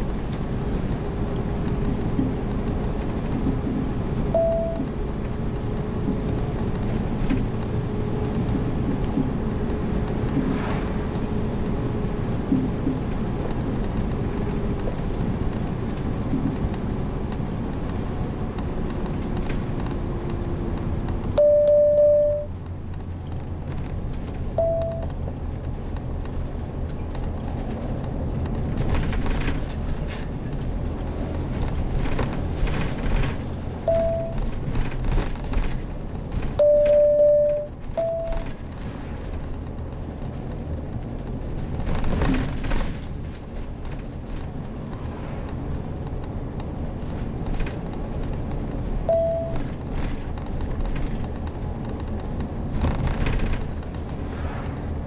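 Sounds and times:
vehicle engine and road noise: 0.0s - 55.0s
short electronic beeps: 4.4s - 4.8s, 21.4s - 22.5s, 24.6s - 25.1s, 33.9s - 34.4s, 36.6s - 38.4s, 49.1s - 49.6s.

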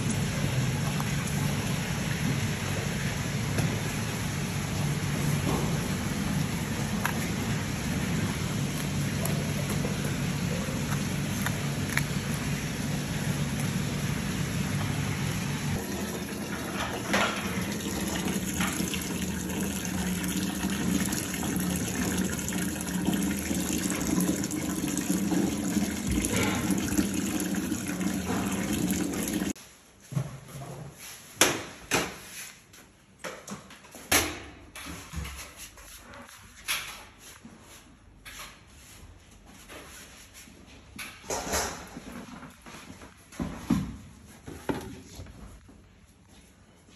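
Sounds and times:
running water: 4.7s - 29.6s.

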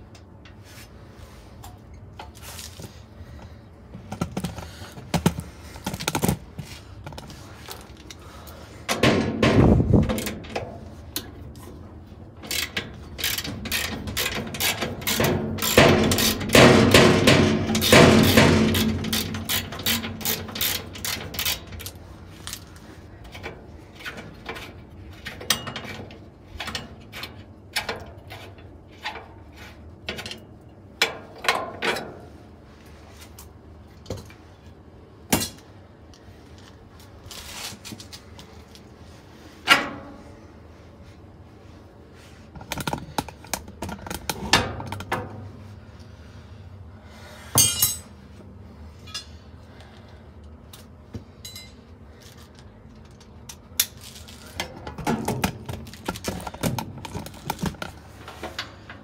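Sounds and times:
metal parts and tools clanking: 8.8s - 32.3s, 47.6s - 48.2s, 49.0s - 49.5s, 51.3s - 59.0s
ratchet wrench clicking: 12.4s - 16.6s, 17.8s - 22.0s.

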